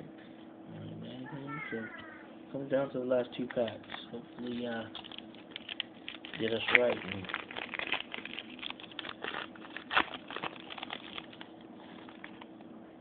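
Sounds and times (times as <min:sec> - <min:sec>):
foil wrapper crinkling: 0:03.6 - 0:12.5.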